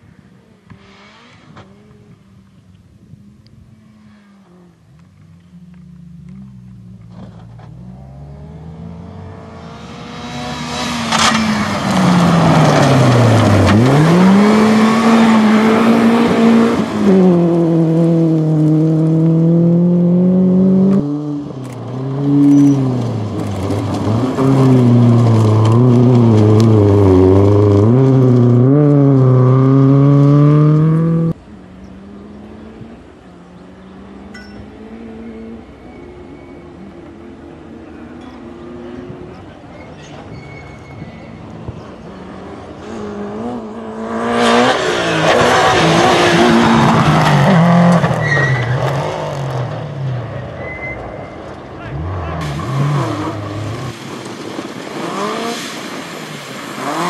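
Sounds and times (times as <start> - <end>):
rally car engine revving: 3.7 - 40.4, 41.2 - 56.0, 56.7 - 57.0.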